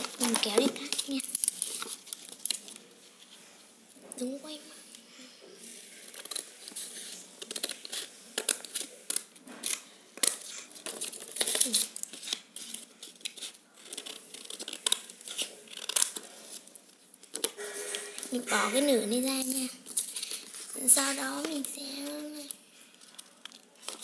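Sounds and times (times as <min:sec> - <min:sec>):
paper rustling: 0:05.7 - 0:24.0
scissors snipping paper: 0:06.1 - 0:24.0.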